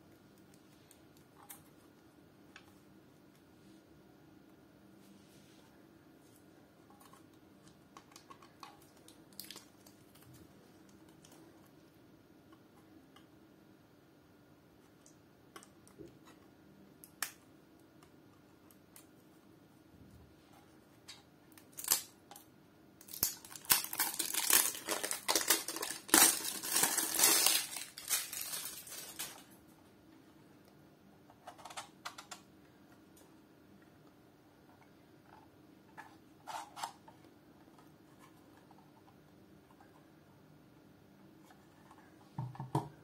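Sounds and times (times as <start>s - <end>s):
plastic film crinkling: 21.6s - 22.1s, 23.0s - 29.6s.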